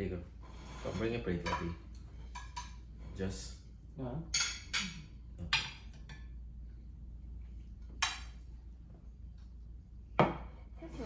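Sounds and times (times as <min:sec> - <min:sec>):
steady low hum: 0:00.0 - 0:11.0
cutlery and dishes clinking: 0:00.9 - 0:02.8, 0:04.3 - 0:06.3.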